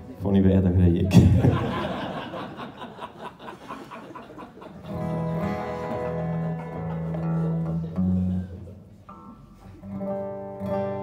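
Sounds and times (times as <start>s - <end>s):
acoustic guitar strumming: 4.9s - 11.0s.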